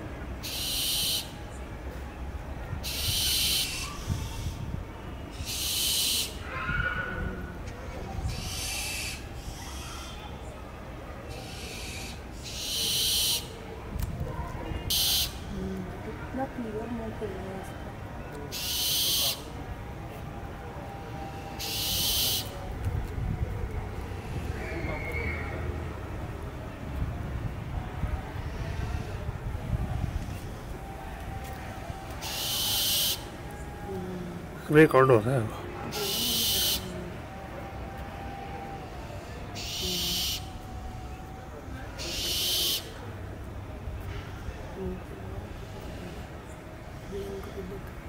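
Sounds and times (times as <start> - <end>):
owl hissing screeches: 0.4 - 1.3, 2.8 - 4.6, 5.3 - 7.2, 8.3 - 10.3, 11.3 - 13.5, 14.9 - 15.4, 18.5 - 19.4, 21.3 - 22.5, 32.2 - 33.3, 35.9 - 37.0, 38.8 - 40.5, 42.0 - 43.0.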